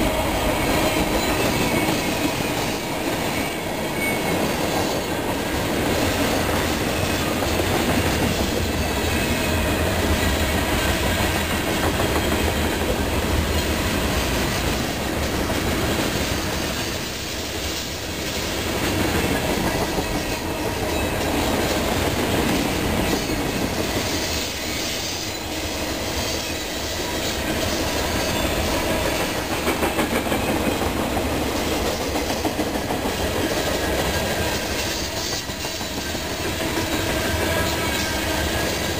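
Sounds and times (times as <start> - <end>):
freight train wheels clattering: 0.0 - 38.9.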